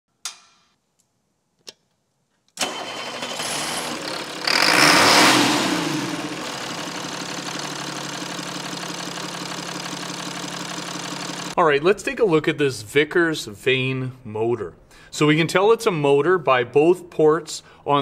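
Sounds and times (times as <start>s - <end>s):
engine starting and idling: 2.6s - 11.6s.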